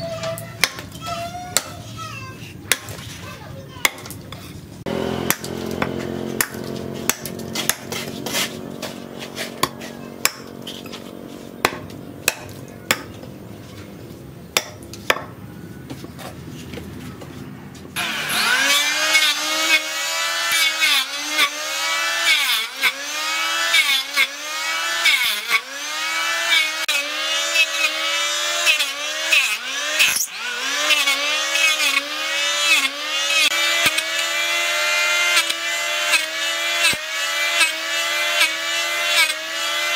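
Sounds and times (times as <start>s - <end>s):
hatchet chopping wood: 0.3s - 1.8s, 2.6s - 3.1s, 3.8s - 13.2s, 14.5s - 15.4s, 20.5s - 39.9s
electric planer whining: 4.9s - 14.2s, 18.0s - 39.9s.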